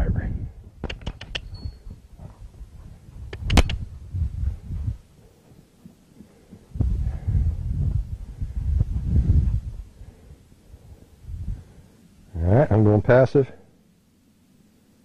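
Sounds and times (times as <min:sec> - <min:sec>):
horse hooves on sandy ground: 0:00.6 - 0:10.0
sharp clicks: 0:00.8 - 0:01.7, 0:03.3 - 0:03.9.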